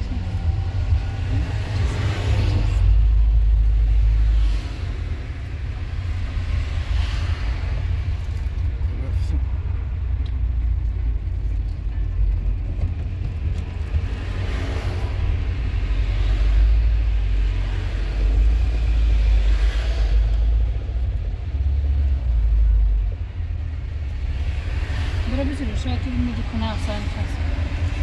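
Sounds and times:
car rumble from inside cabin: 0.0 - 28.0.

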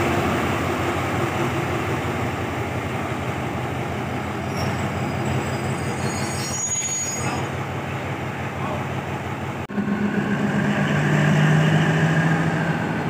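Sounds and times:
low locomotive engine drone: 0.0 - 13.0
rolling train wheels: 0.0 - 13.0
high wheel squeal: 4.3 - 7.6.

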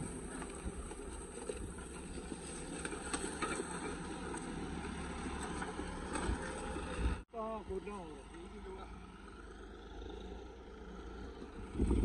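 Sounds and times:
engines running under load: 0.0 - 12.0
wind rumbling on microphone: 11.3 - 12.0.

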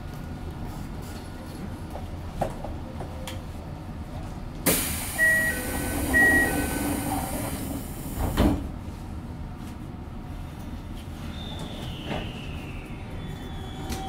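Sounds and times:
low train rumble: 0.0 - 14.0
train doors thudding shut: 4.6 - 8.8
hiss of air: 4.7 - 8.4.

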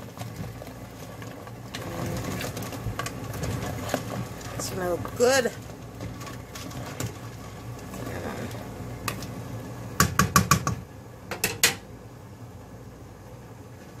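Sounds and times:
steady low hum: 0.0 - 14.0
utensil knocking on steel pot: 10.0 - 11.8.

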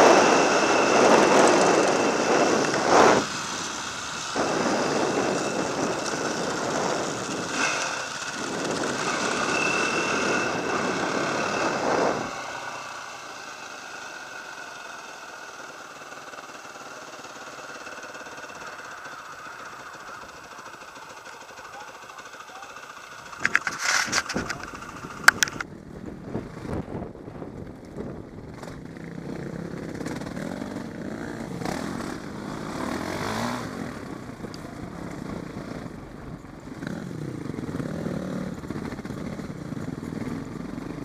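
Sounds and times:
wind rush on microphone: 0.0 - 12.7, 23.4 - 30.3
dirt bike engine: 0.0 - 41.0.

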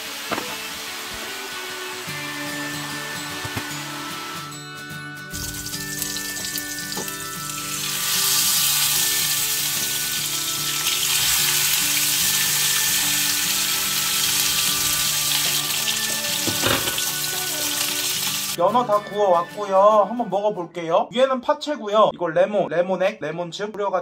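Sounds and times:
fish sizzling in a frying pan: 0.0 - 2.0, 5.3 - 18.6.

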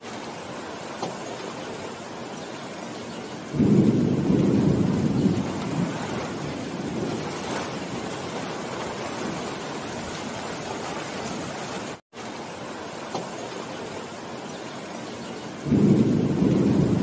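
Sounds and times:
heavy rain on foliage: 0.0 - 17.0
thunder rumble: 3.5 - 11.7, 15.6 - 17.0.

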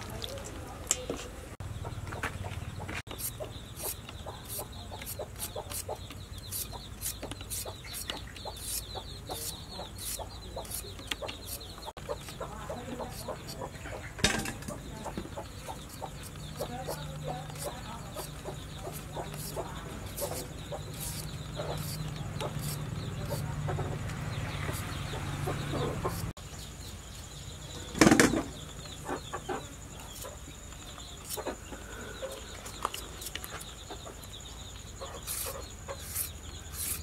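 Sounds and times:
chickens clucking: 1.6 - 26.4, 27.8 - 37.0
peeler scraping potato skin: 3.1 - 13.7, 15.7 - 23.5, 35.2 - 37.0.

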